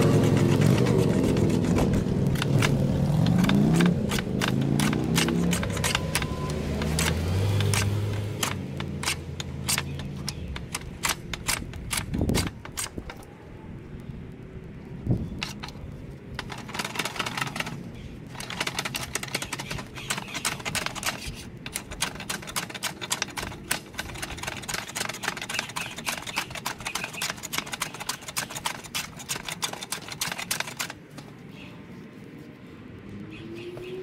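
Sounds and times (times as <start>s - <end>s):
hand plane scraping wood: 0.0s - 10.4s.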